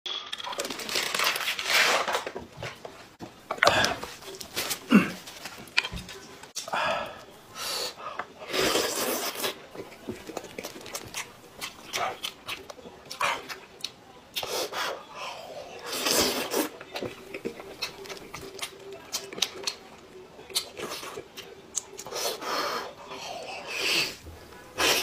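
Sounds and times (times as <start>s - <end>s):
heavy breathing: 6.6s - 8.7s.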